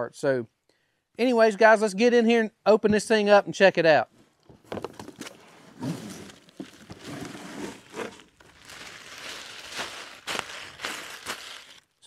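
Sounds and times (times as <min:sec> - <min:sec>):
cardboard scraping and knocking: 0:04.4 - 0:09.1
plastic wrapping rustling: 0:04.7 - 0:12.0.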